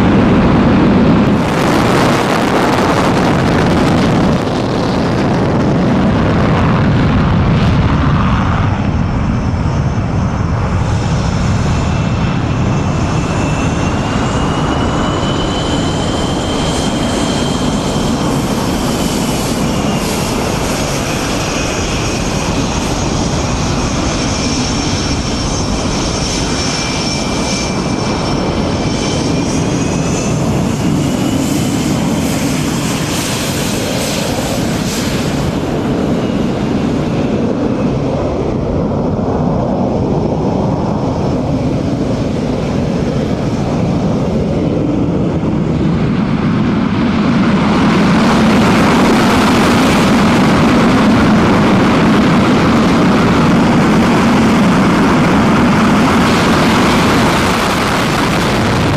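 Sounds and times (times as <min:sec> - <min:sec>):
high turbine whine: 0:00.0 - 0:58.9
jet engines roaring: 0:00.0 - 0:58.9.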